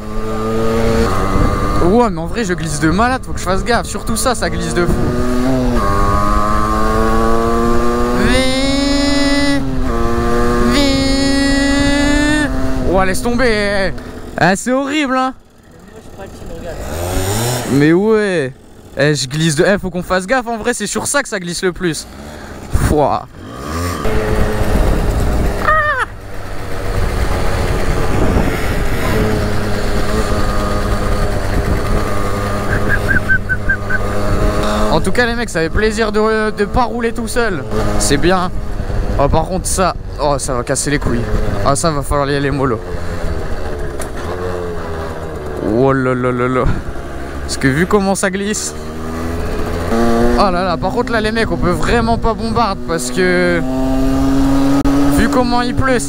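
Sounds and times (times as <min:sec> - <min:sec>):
two-stroke engine running: 0:00.0 - 0:56.0
wind rumble on microphone: 0:00.4 - 0:13.1, 0:24.0 - 0:35.9
wavering high-pitched cry: 0:25.6 - 0:26.2, 0:32.7 - 0:34.0.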